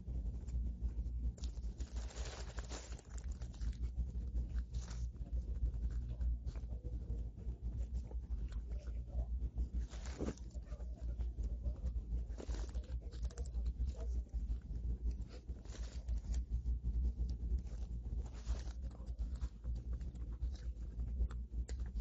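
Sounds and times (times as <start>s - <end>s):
steady low hum: 0.0s - 22.0s
plastic wrapper crinkling: 1.4s - 5.1s
chewing clicks: 12.3s - 22.0s.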